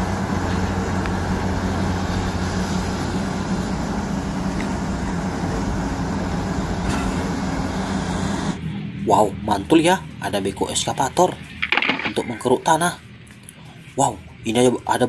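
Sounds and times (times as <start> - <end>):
excavator diesel engine droning: 0.0 - 11.6.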